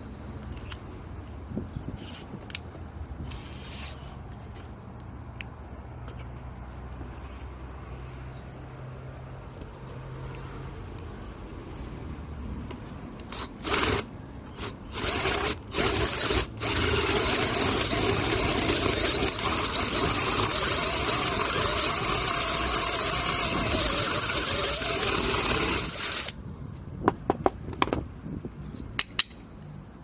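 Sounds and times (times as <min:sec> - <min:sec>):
drill boring through wood: 0:13.3 - 0:26.4.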